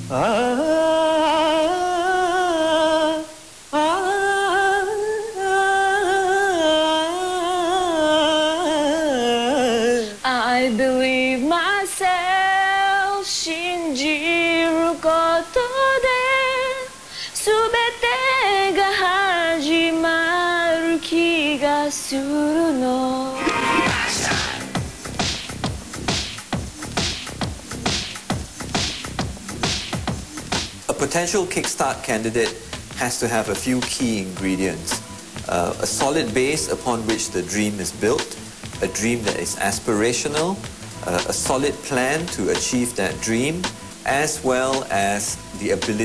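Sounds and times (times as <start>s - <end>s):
person singing solo: 23.2s - 24.8s.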